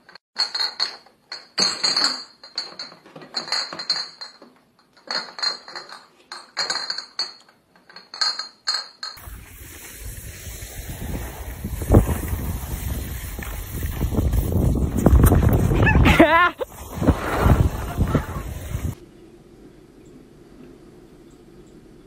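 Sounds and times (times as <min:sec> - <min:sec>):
metal clinking and rattling: 0:00.0 - 0:09.2
wind on microphone: 0:09.2 - 0:19.0.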